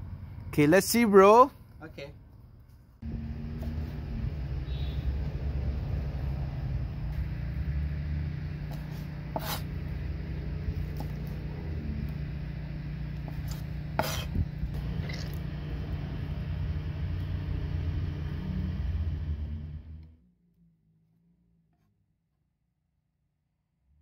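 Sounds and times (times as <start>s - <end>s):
steady low rumble: 3.0s - 20.1s.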